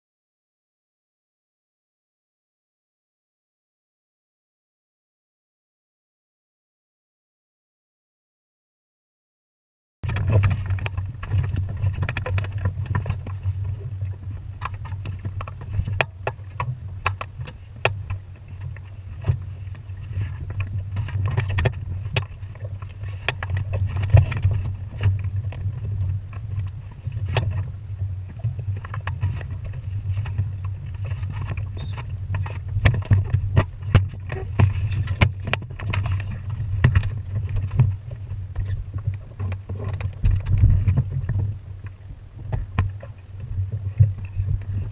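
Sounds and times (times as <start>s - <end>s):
water slapping against hull: 10.0s - 44.9s
wind rumble on microphone: 10.0s - 44.9s.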